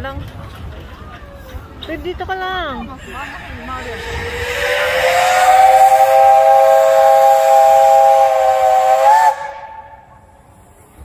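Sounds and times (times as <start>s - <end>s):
steam hissing: 3.0s - 11.0s
steam locomotive whistle: 3.2s - 10.2s.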